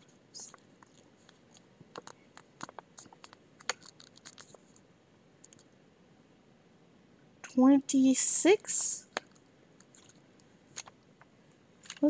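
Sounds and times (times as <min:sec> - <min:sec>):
small plastic items clicking: 0:00.4 - 0:04.6.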